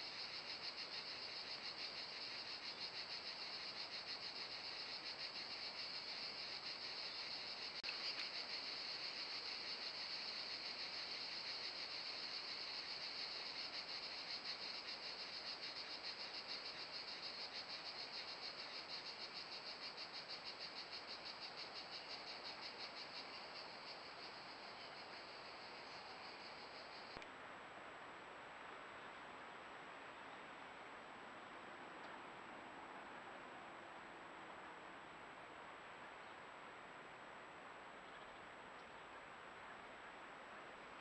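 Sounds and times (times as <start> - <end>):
insects trilling: 0.0 - 27.2.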